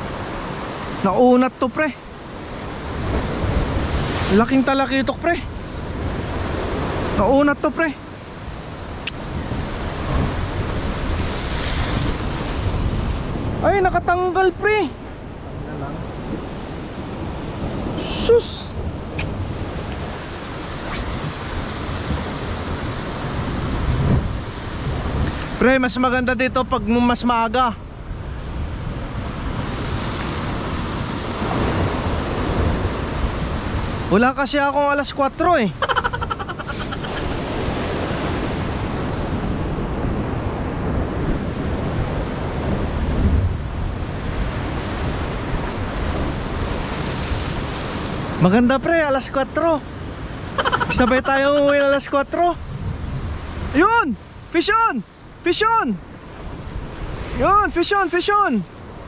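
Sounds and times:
ocean surf breaking on rocks: 0.0s - 18.0s, 37.2s - 49.1s
wind buffeting microphone: 8.4s - 14.1s, 15.2s - 25.4s, 52.1s - 53.8s.

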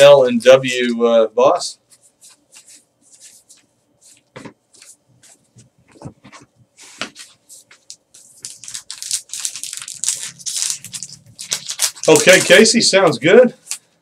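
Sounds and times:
card pack wrapper swishing: 7.9s - 12.8s.

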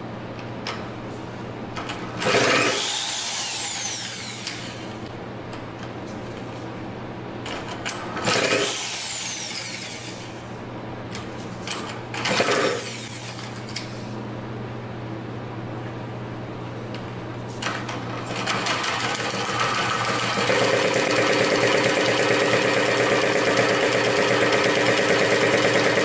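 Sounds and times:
engine turning over: 2.2s - 4.8s, 8.2s - 10.2s, 12.2s - 13.6s, 17.6s - 26.0s
electric drill motor whining: 2.2s - 4.9s, 8.3s - 10.2s, 12.4s - 13.4s.

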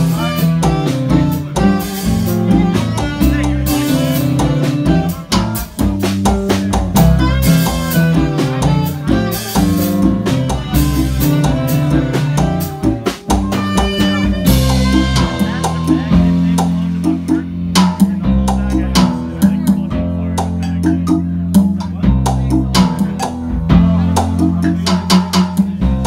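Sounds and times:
saxophone: 0.0s - 16.6s
bass notes: 0.0s - 26.0s
drum kit: 0.0s - 26.0s
keyboard: 0.0s - 26.0s.

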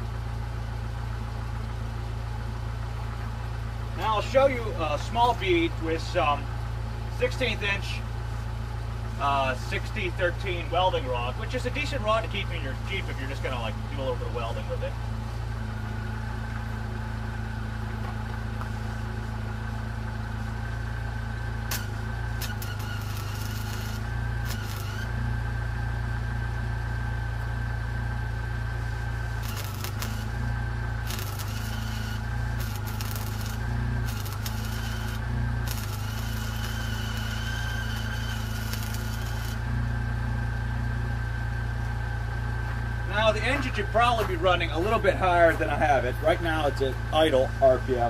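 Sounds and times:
car engine idling: 0.0s - 48.0s
welding arc crackling: 21.7s - 25.2s, 29.0s - 39.7s.

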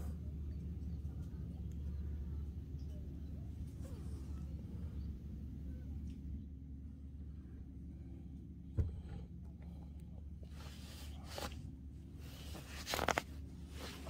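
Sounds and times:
handling rustling: 12.3s - 14.0s.

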